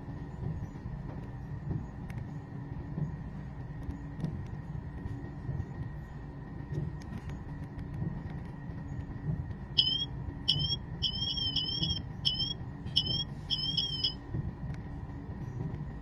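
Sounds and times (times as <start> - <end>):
smartwatch alarm chirps: 9.8 - 14.2.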